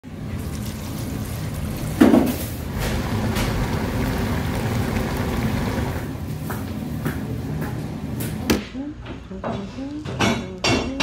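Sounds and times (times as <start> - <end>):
marinade splashing: 0.0 - 6.2
sauce bubbling in a pan: 0.1 - 6.1.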